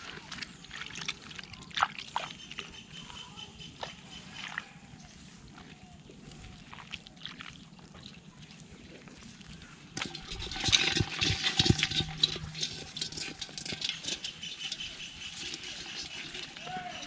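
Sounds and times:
water splashing and sloshing: 0.0 - 2.9, 3.7 - 17.0.

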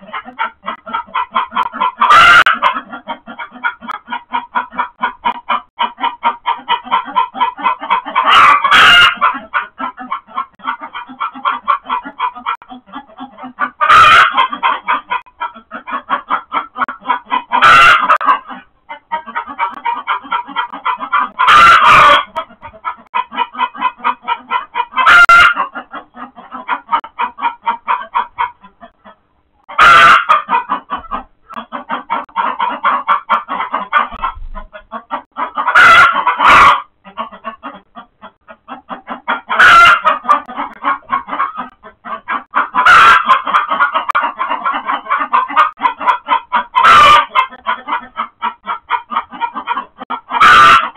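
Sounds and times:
chickens alarm-cackling: 0.0 - 50.9
loud chicken squawks: 0.0 - 50.9.

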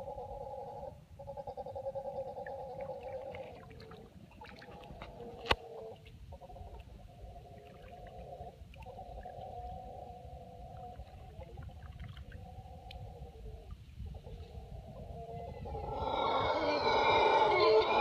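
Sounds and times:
howler monkeys roaring: 15.1 - 18.0.

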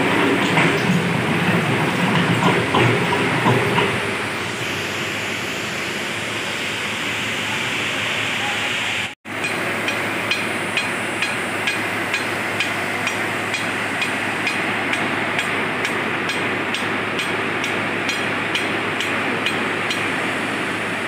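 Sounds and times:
mechanical knocking and clattering: 0.0 - 4.1.

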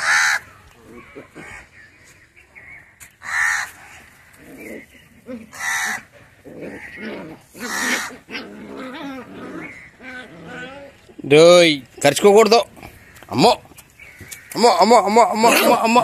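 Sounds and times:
loud animal calls: 3.2 - 11.0.

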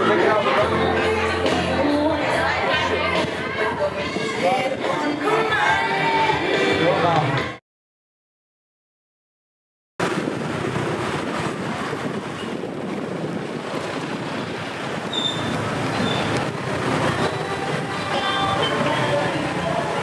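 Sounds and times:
road traffic noise: 0.0 - 7.6, 10.0 - 20.0
wind rumbling on microphone: 10.0 - 20.0.

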